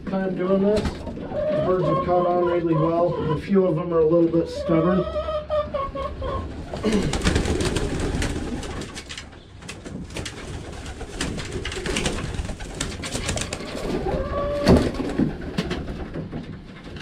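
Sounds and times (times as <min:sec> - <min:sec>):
pigeons cooing: 0:10.5 - 0:15.5.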